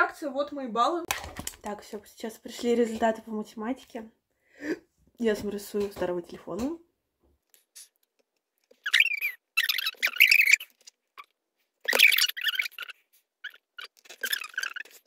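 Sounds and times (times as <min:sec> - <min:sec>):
person squealing: 0:08.8 - 0:10.7, 0:11.9 - 0:15.0.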